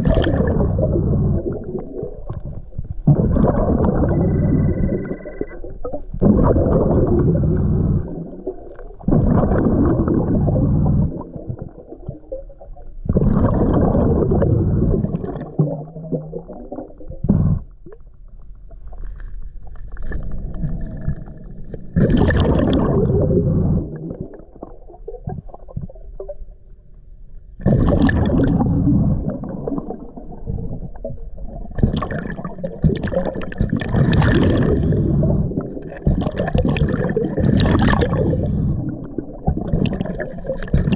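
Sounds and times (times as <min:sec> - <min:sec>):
gurgling exhaled bubbles: 0:00.0 - 0:26.5, 0:27.6 - 0:40.9
scuba regulator breathing underwater: 0:34.0 - 0:36.5, 0:37.9 - 0:39.1.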